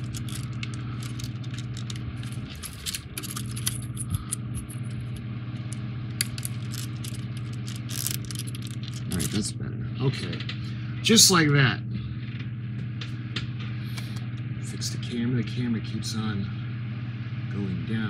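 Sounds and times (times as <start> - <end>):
puzzle pieces clicking and scraping: 0.0 - 9.4
low machine hum: 0.0 - 18.0.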